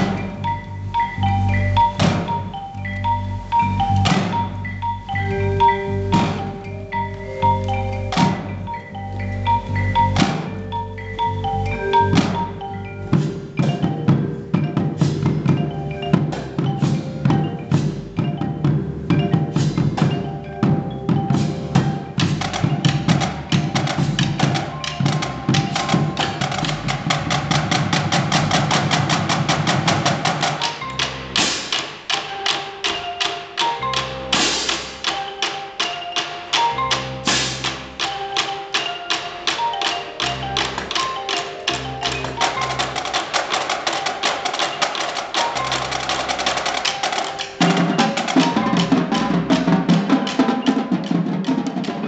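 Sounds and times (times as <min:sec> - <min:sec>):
snare drums: 0:00.0 - 0:02.7, 0:03.4 - 0:08.8, 0:09.5 - 0:52.0
bass drums: 0:00.0 - 0:31.8, 0:40.2 - 0:50.4
cymbals: 0:00.0 - 0:52.0
marimbas playing: 0:00.0 - 0:52.0.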